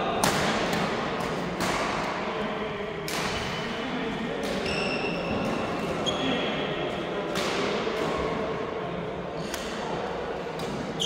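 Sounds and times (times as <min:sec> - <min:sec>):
echoing hall hubbub: 0:00.0 - 0:11.0
rackets hitting shuttlecocks: 0:00.2 - 0:02.3, 0:07.3 - 0:08.3.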